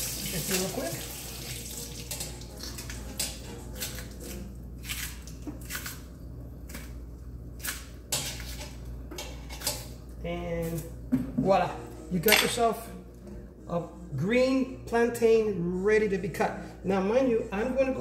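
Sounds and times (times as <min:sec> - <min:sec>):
plantain peel wet scrapes: 0:03.7 - 0:06.1.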